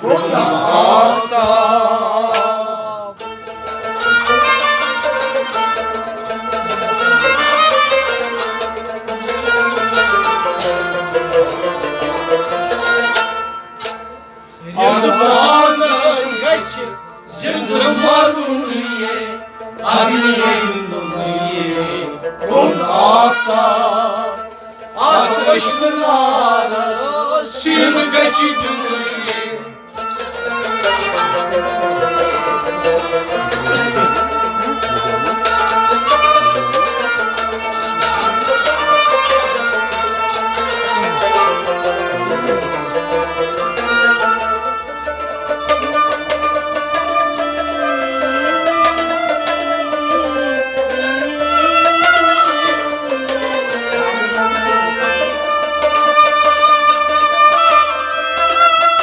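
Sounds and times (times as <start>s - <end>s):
people singing: 0.0s - 3.2s, 14.6s - 29.8s
clay pot drum rhythm: 0.0s - 14.0s, 19.8s - 23.8s, 27.6s - 59.0s
plucked string melody: 0.0s - 59.0s.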